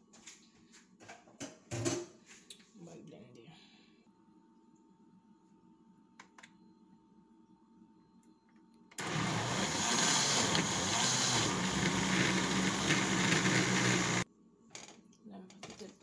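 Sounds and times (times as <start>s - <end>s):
blender motor running: 9.0s - 14.2s.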